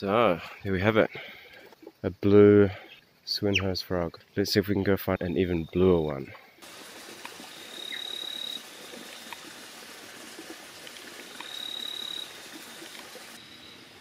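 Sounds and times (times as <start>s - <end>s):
forest stream hiss: 0.0s - 5.1s, 5.8s - 14.0s
long high calls: 7.4s - 9.4s, 11.3s - 14.0s
faint ticks: 10.8s - 11.6s.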